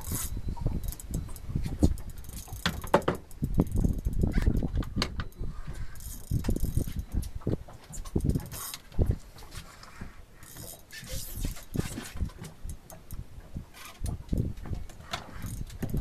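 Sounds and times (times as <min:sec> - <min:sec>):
fishing reel ratchet clicking: 0:00.0 - 0:04.6, 0:05.3 - 0:07.2, 0:10.4 - 0:11.7, 0:15.3 - 0:16.0.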